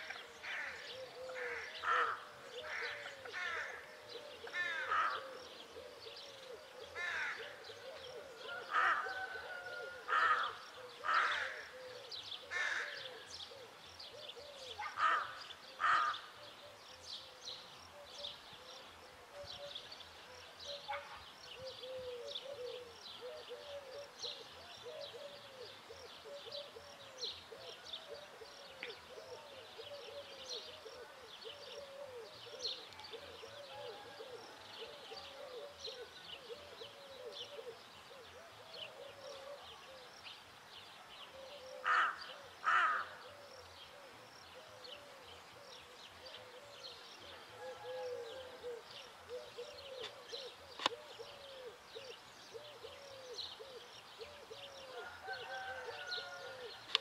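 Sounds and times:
rook cawing: 0:00.0 - 0:03.9, 0:04.5 - 0:05.4, 0:07.0 - 0:07.6, 0:08.5 - 0:11.9, 0:12.5 - 0:13.2, 0:14.9 - 0:16.3, 0:41.8 - 0:43.2.

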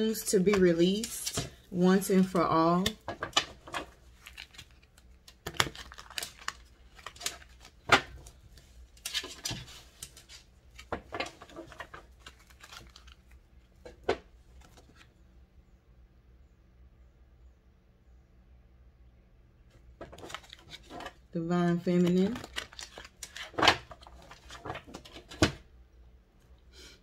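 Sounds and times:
small objects rustling and clicking: 0:00.0 - 0:15.1, 0:20.0 - 0:21.2, 0:22.0 - 0:25.6.

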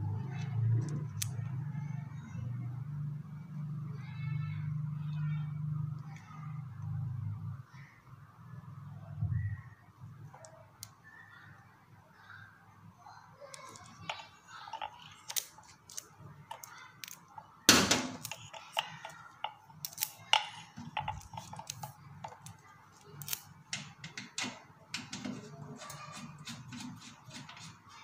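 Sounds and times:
hose fitting clicks and rattles: 0:13.7 - 0:17.2, 0:17.9 - 0:22.6.

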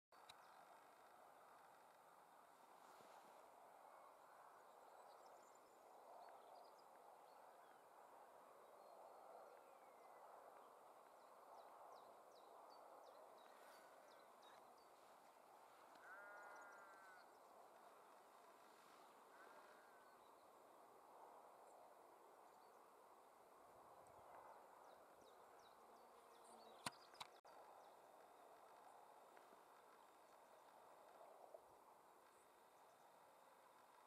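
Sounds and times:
distant animal call: 0:15.7 - 0:17.4.

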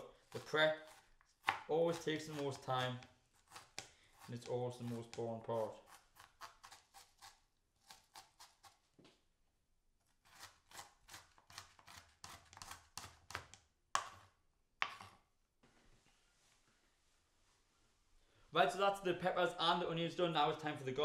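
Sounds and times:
knife chopping on board: 0:00.3 - 0:03.0, 0:12.2 - 0:15.1.

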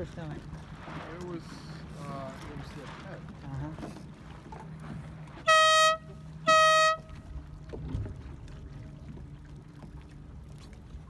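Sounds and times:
air horn blasts: 0:05.4 - 0:07.3.

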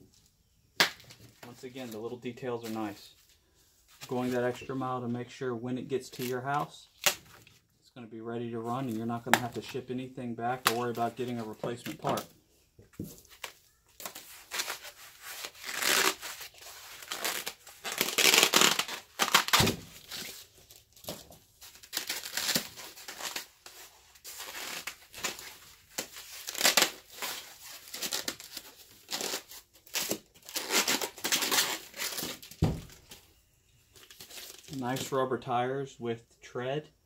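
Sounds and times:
dull thumps: 0:32.5 - 0:33.1.

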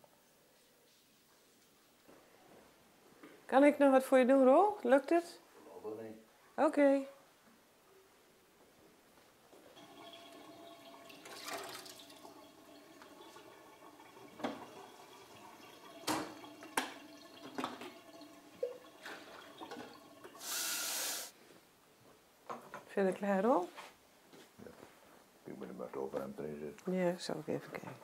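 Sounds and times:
water running at a sink: 0:09.8 - 0:21.3
loud hiss: 0:20.4 - 0:21.4.

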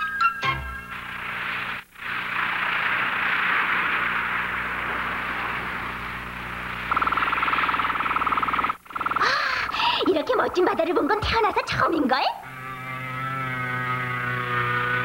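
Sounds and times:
rapid buzzing tone: 0:00.4 - 0:15.0
sea waves washing: 0:01.9 - 0:10.0.

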